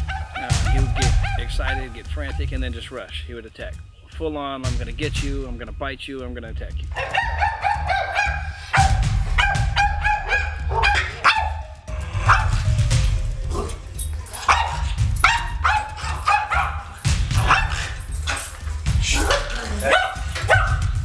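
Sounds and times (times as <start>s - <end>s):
dog barking and yipping: 0.0s - 2.4s, 6.9s - 21.0s
background music: 0.0s - 21.0s.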